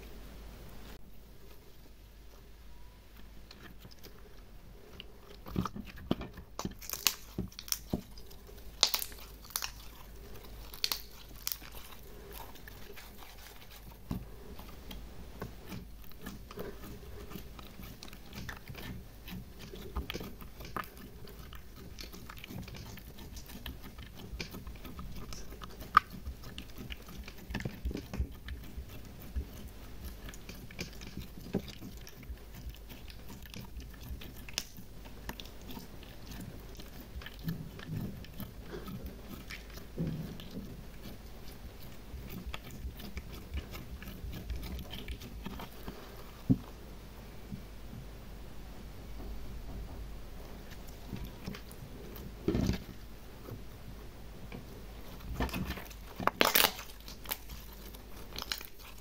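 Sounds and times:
slime squelching and clicking: 0:04.9 - 0:46.7, 0:54.5 - 0:59.0.

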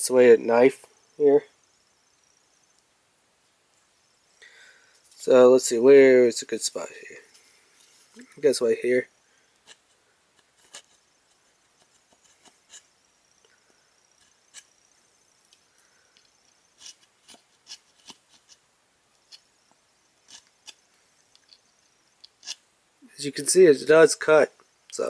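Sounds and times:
serrated blade sawing bark: 0:09.6 - 0:13.0, 0:14.0 - 0:14.9, 0:16.6 - 0:18.6, 0:19.2 - 0:20.8, 0:22.2 - 0:22.6.

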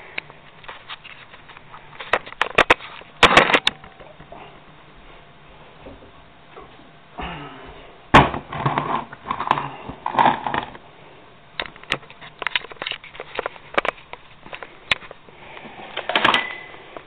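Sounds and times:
kitchen items clattering: 0:08.2 - 0:10.8.

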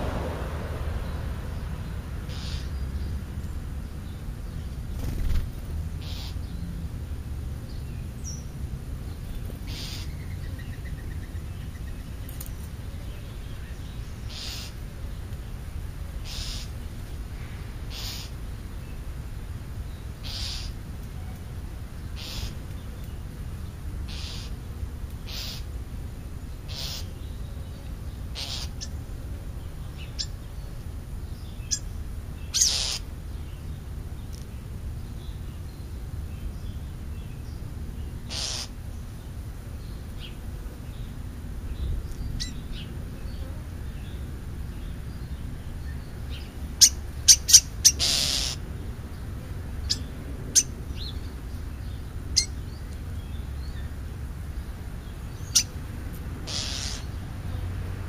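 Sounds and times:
low rumble: 0:00.0 - 0:03.8
songbirds harsh calls and clicks: 0:01.0 - 0:06.8, 0:07.6 - 0:58.0.

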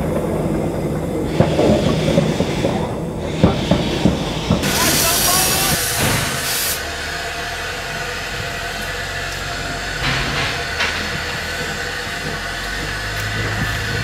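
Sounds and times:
low rumble: 0:00.0 - 0:14.0
steam train hiss: 0:00.0 - 0:14.0.

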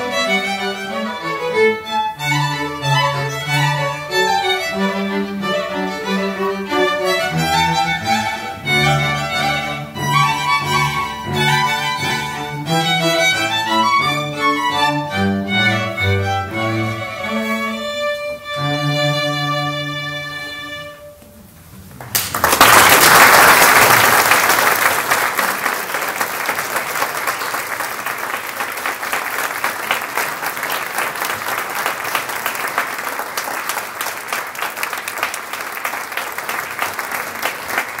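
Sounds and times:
audience applause: 0:22.0 - 0:38.0.

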